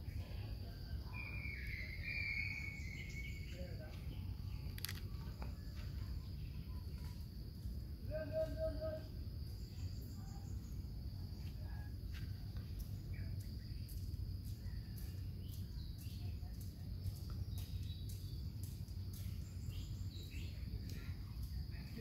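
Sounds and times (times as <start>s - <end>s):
high insect drone: 0.0s - 22.0s
faint bird chirps: 0.1s - 7.3s, 8.1s - 22.0s
small clicks: 4.7s - 5.5s.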